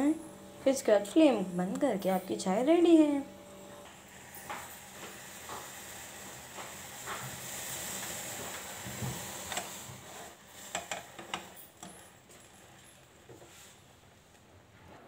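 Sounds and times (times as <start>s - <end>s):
tea boiling in a pan: 3.6s - 13.8s.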